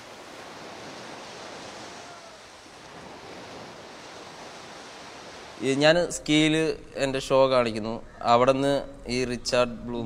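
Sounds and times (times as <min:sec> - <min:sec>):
ocean waves washing on beach: 0:00.0 - 0:05.9.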